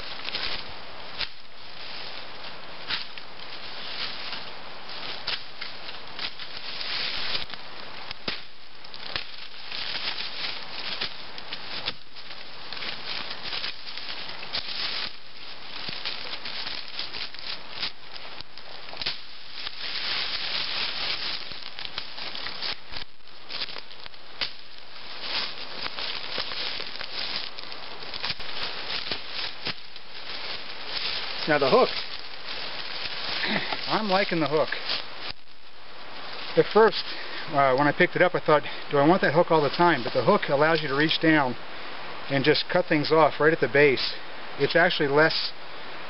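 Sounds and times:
rustle and crackle of leaves: 0:00.0 - 0:46.0
sharp snaps of stems: 0:00.2 - 0:01.5, 0:02.8 - 0:34.0.

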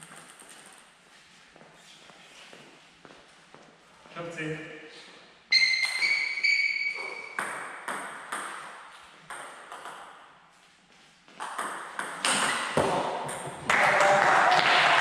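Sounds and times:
table tennis rally: 0:05.5 - 0:10.4, 0:11.3 - 0:15.0
table tennis ball bouncing: 0:05.6 - 0:10.3, 0:11.3 - 0:13.9.

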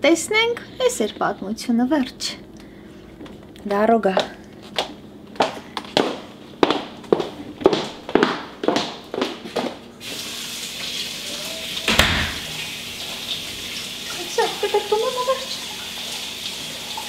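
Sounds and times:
faucet running into sink: 0:10.0 - 0:17.0
loud knock: 0:11.9 - 0:12.5.

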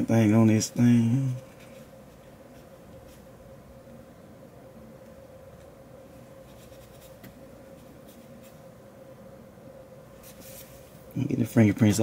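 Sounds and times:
faint steady hum: 0:00.0 - 0:12.0
cloth rubbing on microphone: 0:06.4 - 0:08.7, 0:10.2 - 0:11.0.

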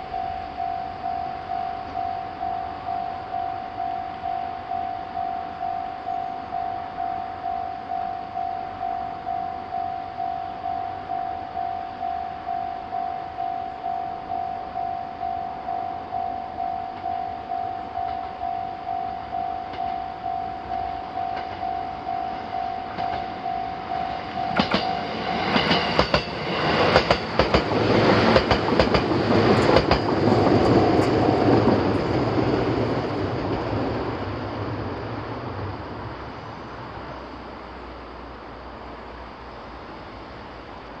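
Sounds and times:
level-crossing alarm tone: 0:00.0 - 0:27.1
train rumble: 0:00.0 - 0:41.0
train wheels clicking over rail joints: 0:18.0 - 0:18.4, 0:19.6 - 0:34.2.

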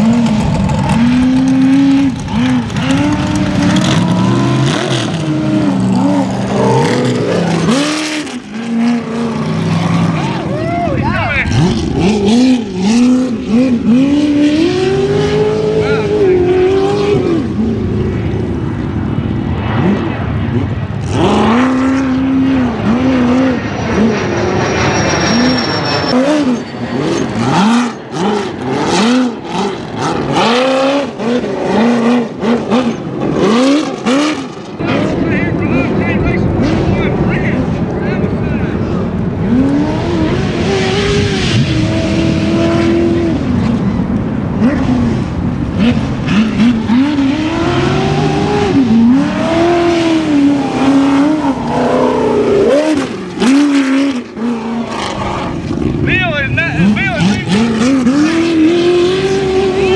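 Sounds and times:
buggy engine revving: 0:00.0 - 0:59.9.

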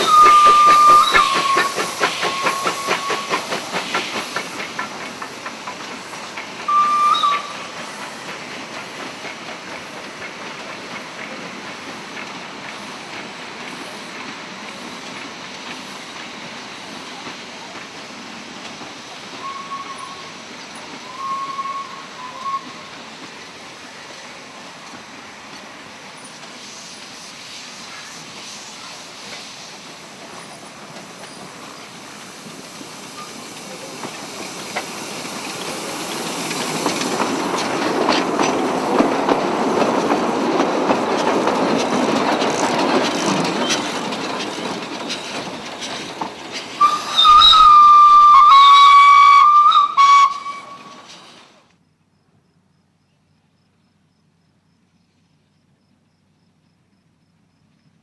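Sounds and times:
short whistle toots: 0:00.0 - 0:03.4, 0:06.7 - 0:07.6, 0:46.8 - 0:50.9
steam whistle blowing: 0:00.0 - 0:03.4, 0:06.6 - 0:07.6, 0:21.0 - 0:22.8, 0:46.8 - 0:51.1
steam locomotive passing: 0:00.0 - 0:51.7.

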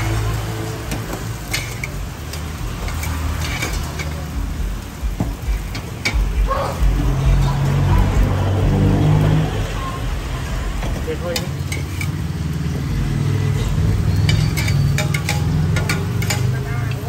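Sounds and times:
frying sizzling: 0:00.0 - 0:17.0
metal ladles clinking: 0:00.9 - 0:04.3, 0:10.8 - 0:12.3, 0:13.6 - 0:17.0.

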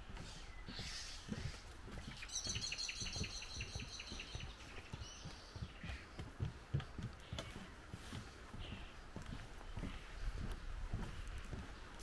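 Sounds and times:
footsteps on wooden boardwalk: 0:00.0 - 0:12.0
songbird singing repeated notes: 0:00.2 - 0:06.4.

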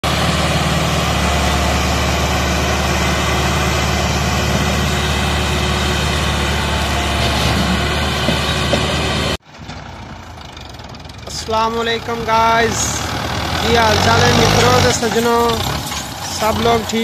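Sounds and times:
tractor diesel engine under load: 0:00.0 - 0:17.0.

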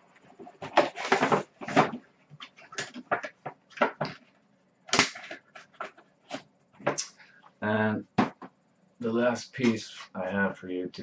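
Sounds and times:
boxes being handled knocking: 0:00.1 - 0:04.3, 0:04.9 - 0:07.0, 0:08.0 - 0:08.6.

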